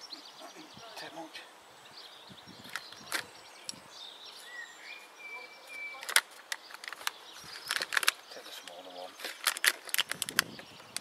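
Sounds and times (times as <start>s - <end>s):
soil rustling: 2.6s - 11.0s.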